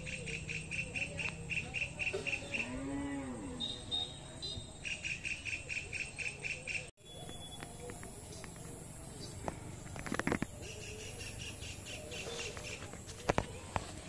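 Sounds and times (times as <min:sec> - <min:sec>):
high bird chirps: 0:00.0 - 0:02.8, 0:03.6 - 0:08.6
insects chirping: 0:00.0 - 0:13.4.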